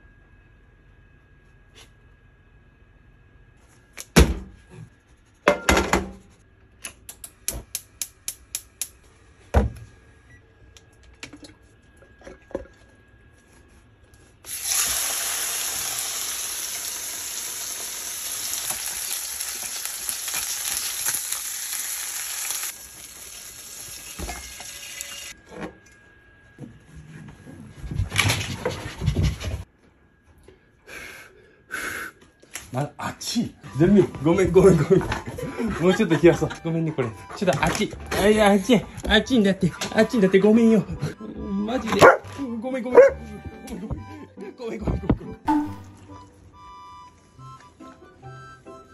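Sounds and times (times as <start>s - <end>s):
steak sizzling in frying pan: 14.5s - 25.3s.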